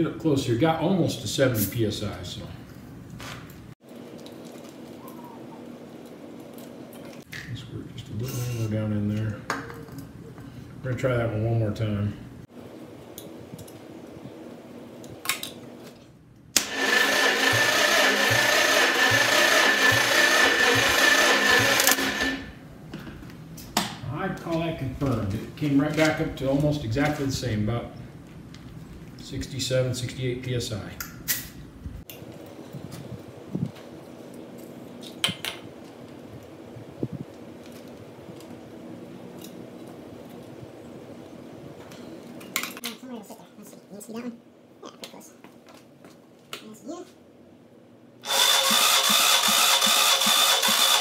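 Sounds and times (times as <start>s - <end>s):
steady background hum: 0.0s - 51.0s
engine cranking on starter motor: 16.6s - 22.6s, 48.2s - 51.0s.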